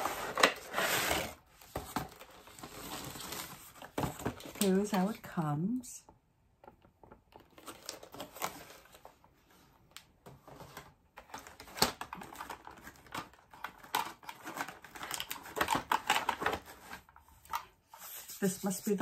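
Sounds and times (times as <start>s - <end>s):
plastic parts clicking and rustling: 6.6s - 9.3s, 9.9s - 18.0s.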